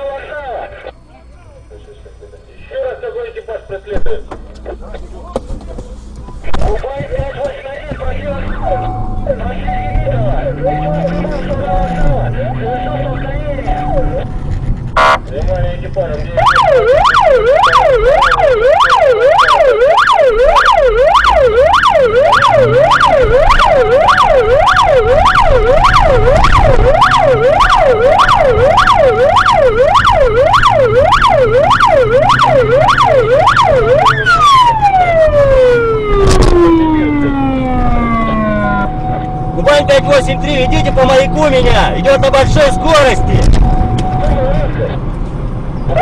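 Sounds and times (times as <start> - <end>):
steady siren tone: 7.7 - 15.2, 16.4 - 44.8
siren yelping: 7.8 - 14.4, 16.3 - 44.9.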